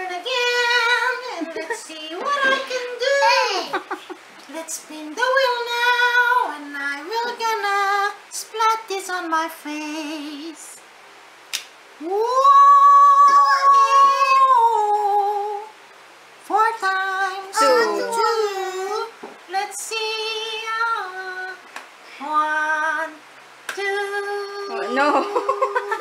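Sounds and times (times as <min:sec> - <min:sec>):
high voice singing: 0:00.0 - 0:10.8, 0:12.0 - 0:15.8, 0:16.4 - 0:21.6.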